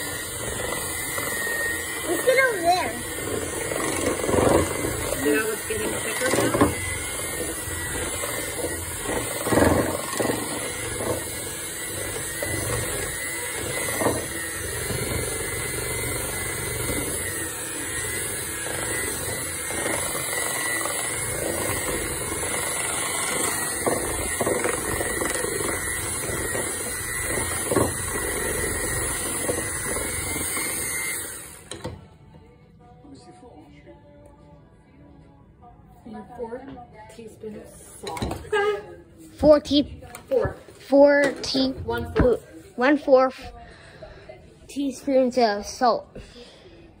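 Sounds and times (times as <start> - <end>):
electric hand mixer running: 0.0 - 32.2.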